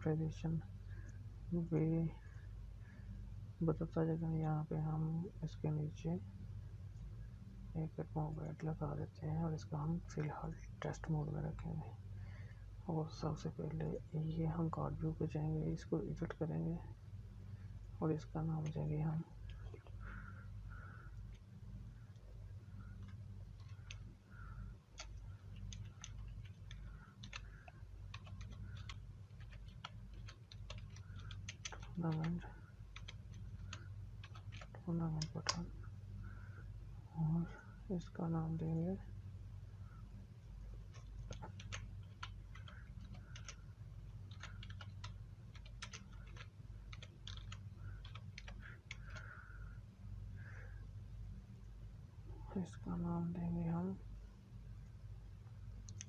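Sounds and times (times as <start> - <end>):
faint low hum: 0.0 - 56.0
computer keyboard typing: 22.8 - 35.6, 40.8 - 49.7.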